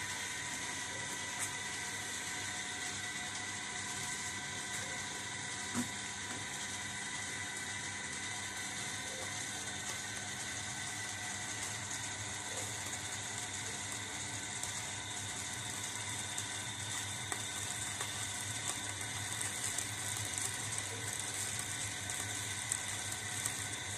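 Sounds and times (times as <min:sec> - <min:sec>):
electric mixer motor humming: 0:00.0 - 0:23.9
light crackles and ticks: 0:09.8 - 0:23.9.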